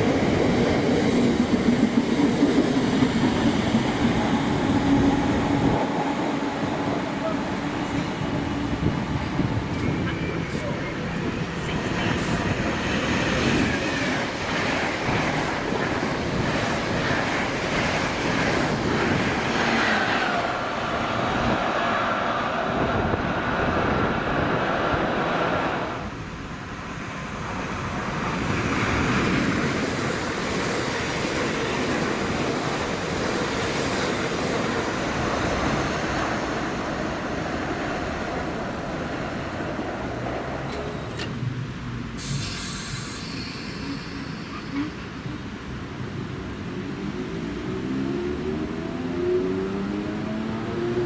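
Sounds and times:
train whine: 0:00.0 - 0:41.3.

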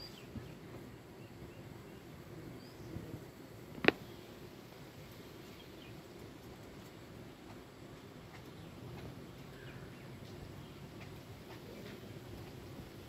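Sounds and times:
faint bird chirps: 0:00.0 - 0:03.2, 0:08.2 - 0:13.0
low background noise: 0:00.0 - 0:13.0.

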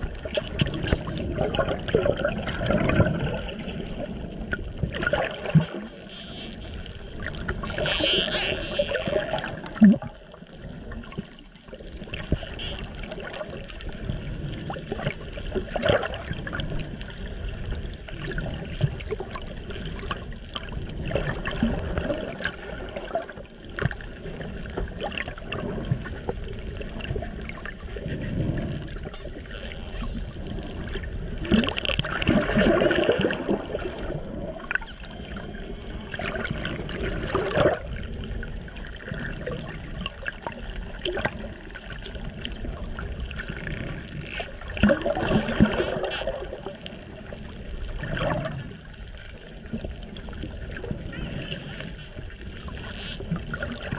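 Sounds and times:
bursts of clicks and bubbles: 0:00.0 - 0:53.9
underwater rush of water: 0:00.0 - 0:53.9
dolphin whistles: 0:00.5 - 0:01.8, 0:19.1 - 0:20.1, 0:32.9 - 0:35.0.

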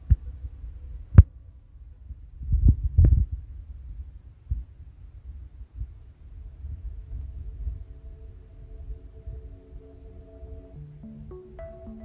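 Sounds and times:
low rumble: 0:05.8 - 0:11.3.

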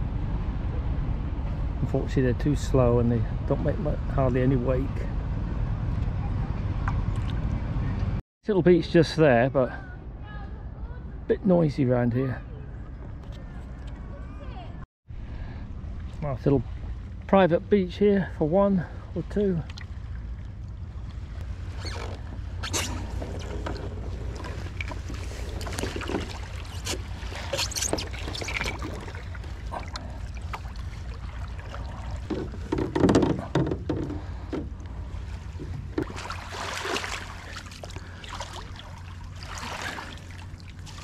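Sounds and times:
steady low rumble: 0:00.0 - 0:11.4, 0:12.4 - 0:41.0
water rippling along hull: 0:15.4 - 0:41.0
paddle strokes splashing: 0:19.6 - 0:41.0.

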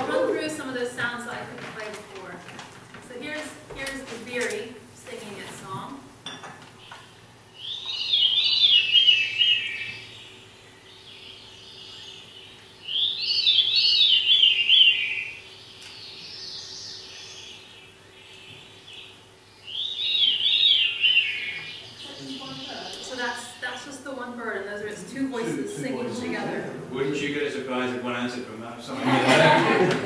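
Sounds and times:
recorded birdsong playback: 0:03.1 - 0:25.3.

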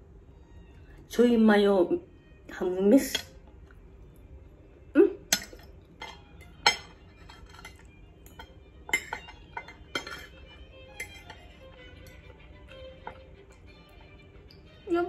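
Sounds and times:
fork and knife clinking on a plate: 0:05.3 - 0:14.6.

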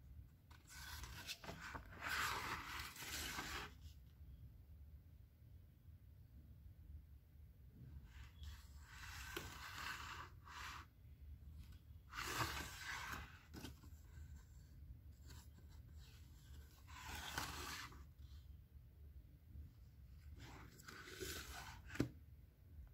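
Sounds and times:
book pages turning: 0:00.5 - 0:03.8, 0:08.4 - 0:10.8, 0:11.6 - 0:14.1, 0:15.2 - 0:18.1, 0:20.4 - 0:22.1.

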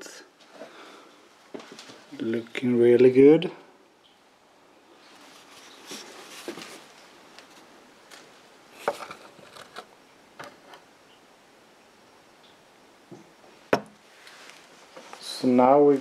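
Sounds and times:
rustling of handling: 0:05.0 - 0:10.8, 0:14.0 - 0:16.0.

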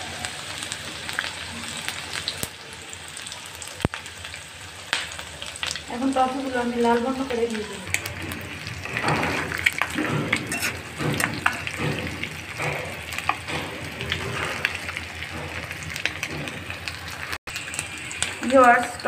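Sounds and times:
pastries sizzling in hot oil: 0:00.0 - 0:19.0.

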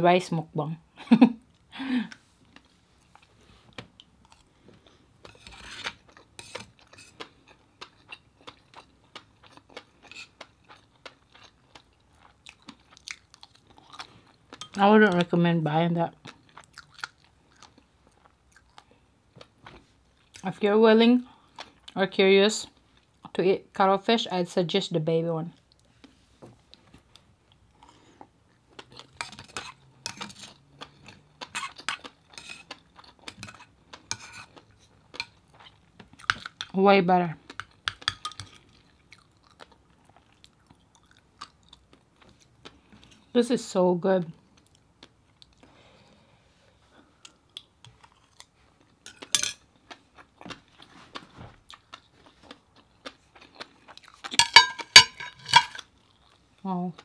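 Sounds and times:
chewing: 0:02.1 - 0:15.2, 0:16.2 - 0:20.4, 0:25.6 - 0:36.7, 0:37.4 - 0:43.3, 0:47.2 - 0:54.5, 0:55.6 - 0:57.0
metal spoon scraping a plate: 0:05.3 - 0:07.2, 0:32.4 - 0:32.7, 0:33.4 - 0:34.5, 0:54.4 - 0:55.9.

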